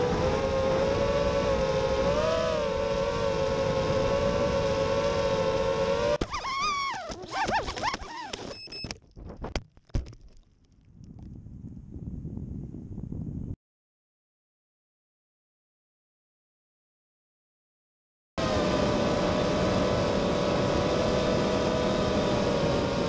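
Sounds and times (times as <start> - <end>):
quadcopter motors whining: 0.0 - 8.7.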